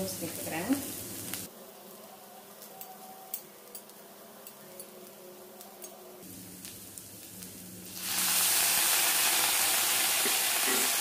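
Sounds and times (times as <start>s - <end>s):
vegetables sizzling in a pan: 0.0s - 2.7s, 6.2s - 11.0s.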